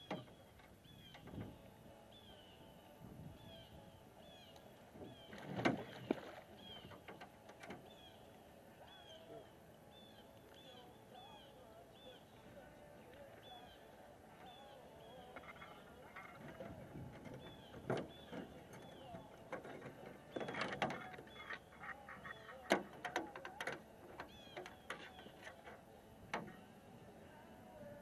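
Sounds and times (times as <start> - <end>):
landing net and boat gear knocking: 5.0 - 8.0, 15.2 - 26.7.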